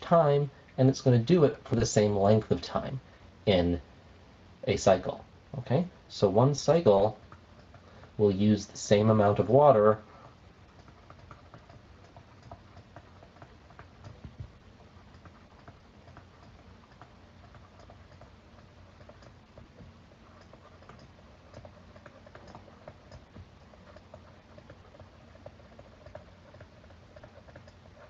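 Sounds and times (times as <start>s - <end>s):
stylus scratching on tablet: 10.6s - 28.0s.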